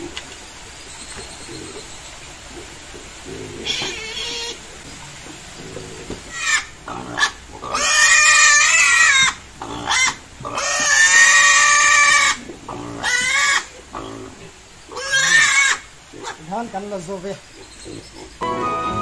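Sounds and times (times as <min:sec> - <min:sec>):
piglet squealing: 0:03.6 - 0:04.6, 0:06.3 - 0:12.4, 0:14.9 - 0:16.4.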